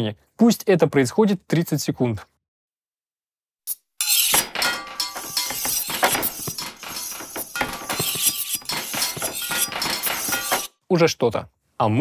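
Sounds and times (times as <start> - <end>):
metal clangs: 4.0 - 10.7.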